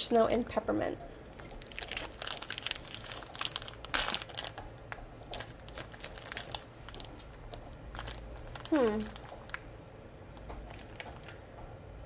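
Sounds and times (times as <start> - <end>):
plastic bag crinkling: 1.3 - 9.7, 10.4 - 11.5.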